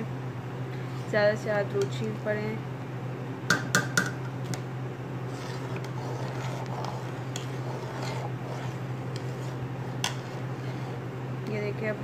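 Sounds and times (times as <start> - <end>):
spoon stirring and scraping: 5.2 - 11.1.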